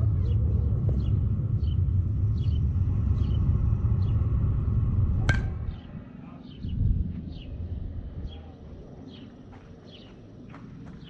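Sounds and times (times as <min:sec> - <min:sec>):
wind rumble on microphone: 0:00.0 - 0:09.7
bat hitting ball crack: 0:05.2 - 0:05.7.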